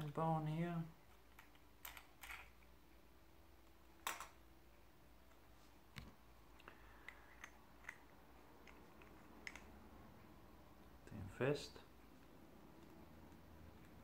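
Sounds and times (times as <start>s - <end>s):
small metal parts clicking: 1.1s - 2.7s.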